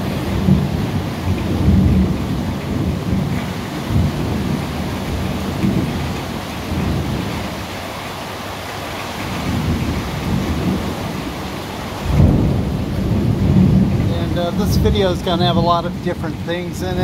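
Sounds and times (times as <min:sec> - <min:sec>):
thunder rumbling: 0:00.0 - 0:07.7, 0:09.2 - 0:17.0
rain falling steadily: 0:00.0 - 0:17.0.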